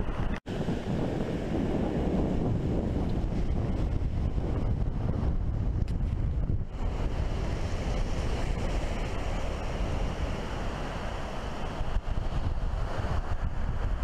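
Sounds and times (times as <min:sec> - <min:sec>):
wind buffeting microphone: 0:00.0 - 0:14.0
surf breaking on beach: 0:00.5 - 0:14.0.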